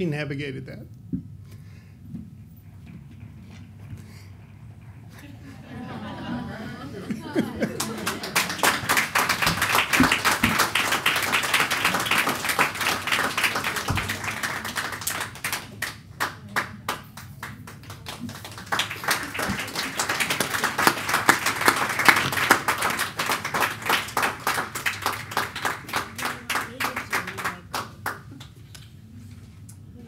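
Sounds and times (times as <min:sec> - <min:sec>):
audience clapping: 0:05.8 - 0:28.8.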